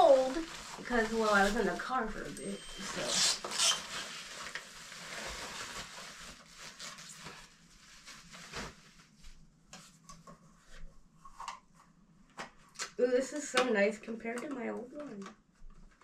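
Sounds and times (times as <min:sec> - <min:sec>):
plastic bag rustling: 0:00.0 - 0:09.4.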